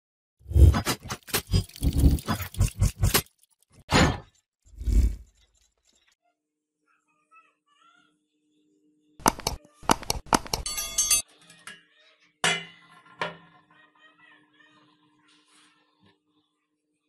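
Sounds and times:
ringing metal knocks: 10.5s - 11.2s.

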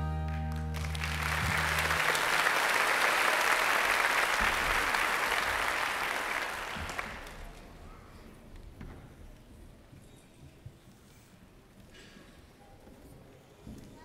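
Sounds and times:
held chord of a song: 0.0s - 3.1s
audience applauding: 0.3s - 7.8s.

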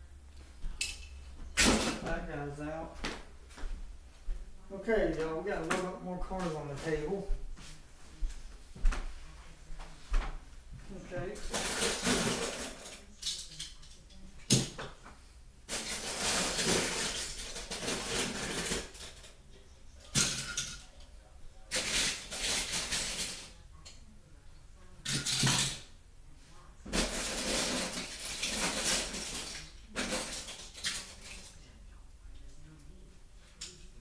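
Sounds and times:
toy cars clattering: 11.5s - 14.0s, 15.7s - 19.4s, 21.7s - 23.5s, 27.0s - 31.5s.

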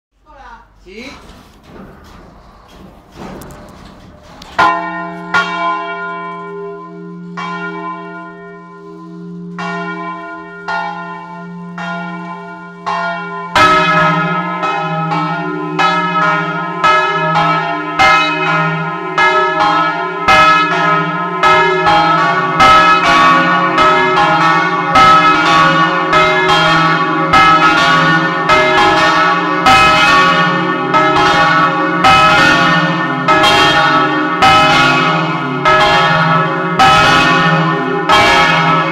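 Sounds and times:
deep hum: 0.7s - 4.9s
church bells ringing: 1.7s - 38.9s.

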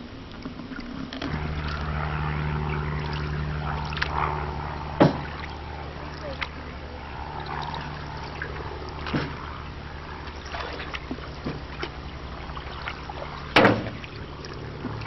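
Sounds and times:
water dripping off paddle: 0.3s - 9.6s, 10.2s - 15.0s
loud sharp thump: 5.0s - 5.3s, 13.6s - 14.0s.

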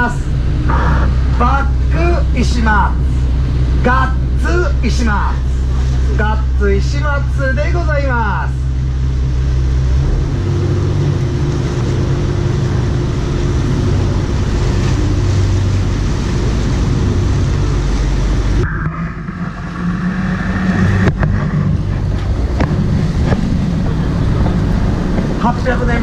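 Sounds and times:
boat engine running: 0.0s - 26.0s
rushing noise: 8.7s - 26.0s.

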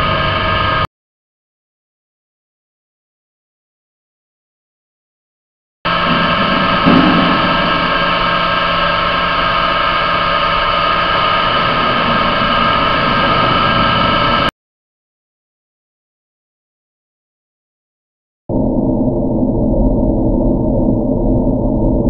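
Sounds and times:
pump machinery hum: 0.0s - 0.9s, 5.9s - 14.5s
loud bump: 5.9s - 14.5s.

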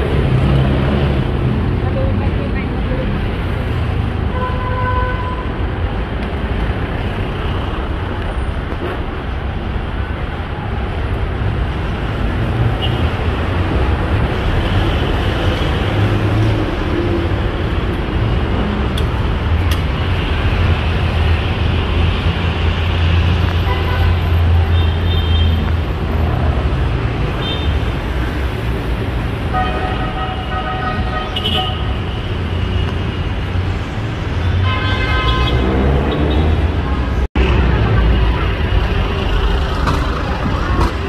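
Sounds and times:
traffic rumble: 0.0s - 41.0s.

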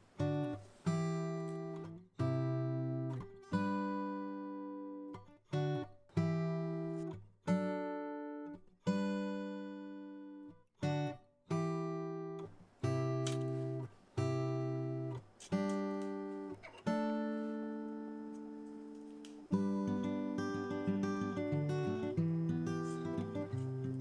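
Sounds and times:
strummed acoustic guitar chords: 0.1s - 24.0s.

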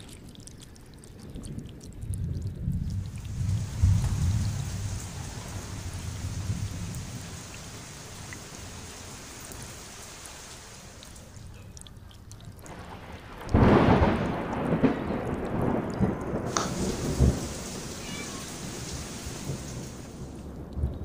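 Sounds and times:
rain falling: 0.0s - 21.0s
thunder crack and rumble: 1.6s - 9.0s, 12.6s - 21.0s.

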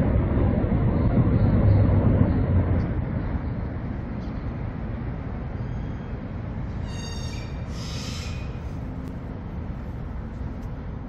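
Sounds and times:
city street traffic rumble: 0.0s - 11.0s
high-pitched squeal: 6.8s - 8.6s.

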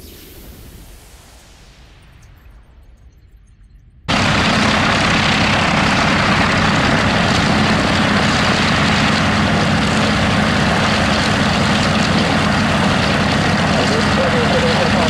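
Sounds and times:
radial aircraft engine running: 4.1s - 15.0s.

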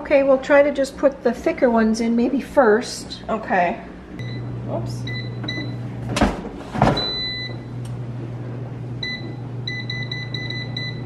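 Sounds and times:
steady low hum: 0.0s - 11.0s
air fryer basket knocking shut: 5.4s - 7.2s
long beep: 7.0s - 7.7s, 9.0s - 11.0s.

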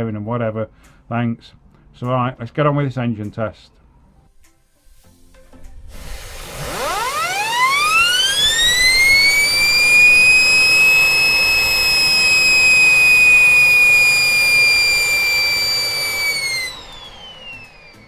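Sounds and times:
rushing air: 5.8s - 6.8s
turbine rotor whine: 6.0s - 18.0s.

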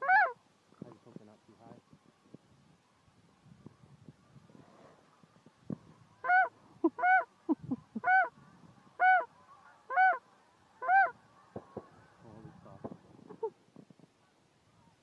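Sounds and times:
geese honking: 6.2s - 7.3s, 8.0s - 12.9s.

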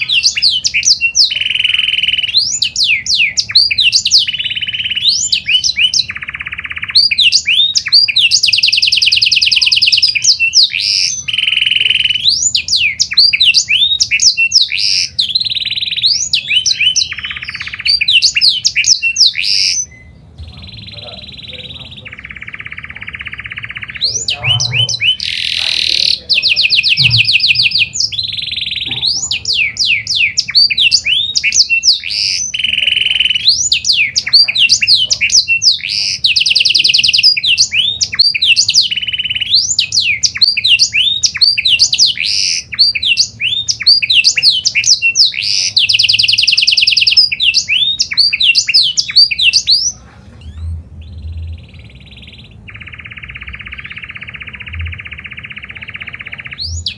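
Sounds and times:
canary singing trills: 0.0s - 56.9s.

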